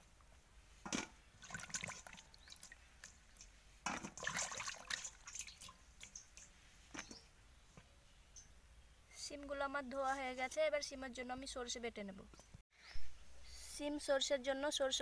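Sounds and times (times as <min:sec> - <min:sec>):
water splashing and dripping: 0:00.9 - 0:06.6.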